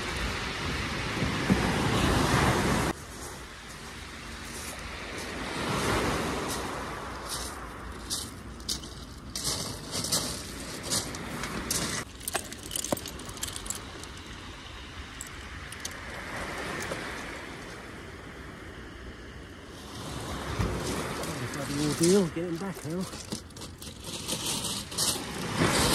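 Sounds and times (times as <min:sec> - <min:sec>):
small waves breaking on shingle: 0:05.5 - 0:17.9, 0:20.3 - 0:25.9
footsteps crunching on pebbles: 0:06.4 - 0:14.4, 0:20.8 - 0:25.9.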